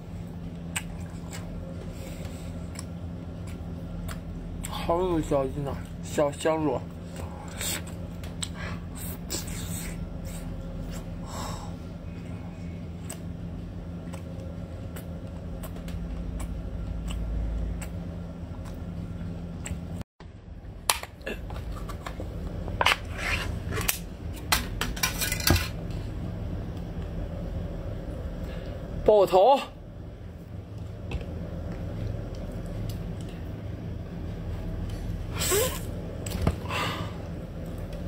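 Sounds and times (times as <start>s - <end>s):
steady low hum: 0.0s - 38.0s
person chewing food: 0.5s - 4.8s, 13.9s - 20.0s.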